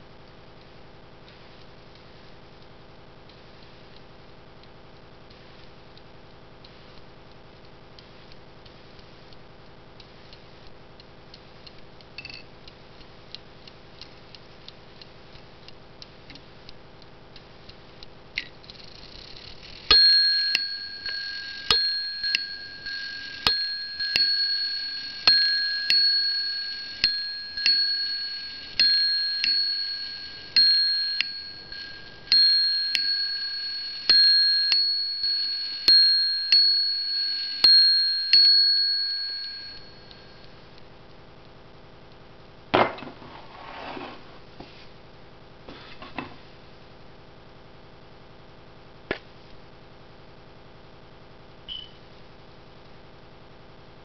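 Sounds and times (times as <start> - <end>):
hammer striking clock bell: 19.9 - 40.4.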